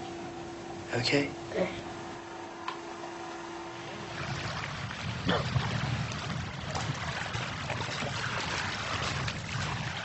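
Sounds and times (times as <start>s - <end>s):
wind: 0.0s - 10.0s
waves washing on shingle: 4.1s - 10.0s.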